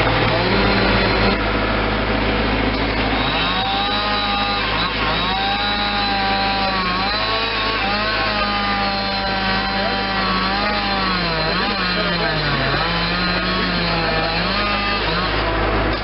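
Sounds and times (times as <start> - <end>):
chainsaw cutting wood: 0.0 - 1.4, 2.3 - 16.0
low engine drone: 0.0 - 16.0.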